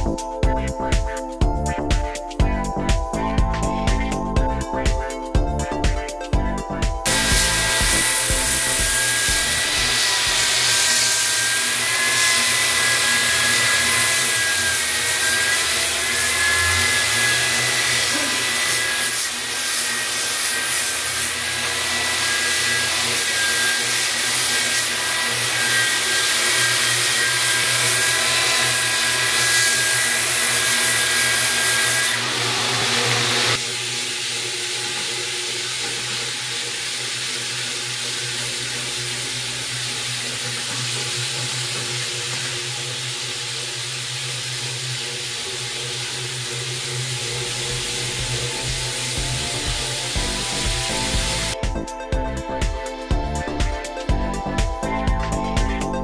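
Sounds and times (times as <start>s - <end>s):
power sander whining: 7.0s - 43.2s, 45.7s - 51.7s.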